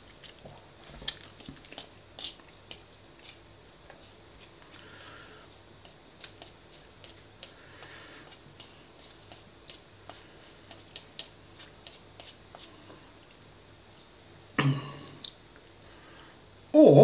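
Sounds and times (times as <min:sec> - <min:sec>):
soft eating clicks: 0:15.0 - 0:16.0.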